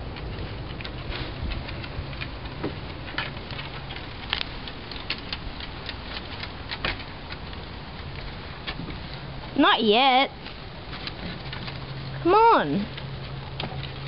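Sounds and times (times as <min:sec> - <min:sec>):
low steady rumble: 0:00.0 - 0:14.0
dog claws clicking on wooden boards: 0:00.1 - 0:09.0.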